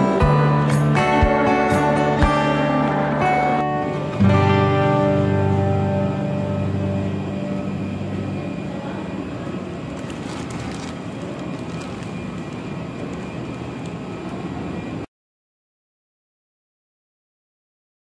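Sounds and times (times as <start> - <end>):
guitar music: 0.0 - 8.8
jet aircraft running: 5.6 - 15.0.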